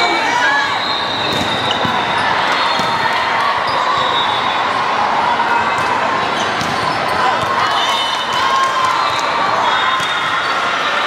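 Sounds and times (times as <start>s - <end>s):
sports hall din: 0.0s - 11.0s
volleyballs smacking and bouncing: 1.3s - 2.1s, 5.8s - 7.6s.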